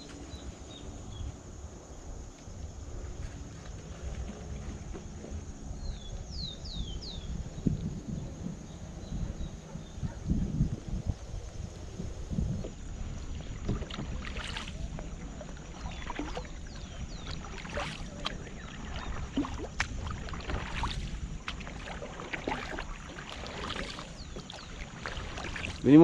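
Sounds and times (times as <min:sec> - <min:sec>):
wind rumble on microphone: 0:00.0 - 0:26.0
kayak paddle splashing: 0:11.0 - 0:26.0.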